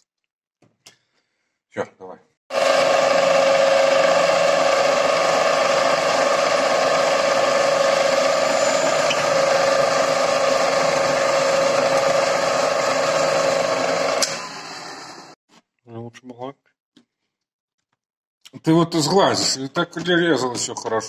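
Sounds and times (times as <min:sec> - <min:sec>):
drill press motor whine: 0:02.5 - 0:15.4.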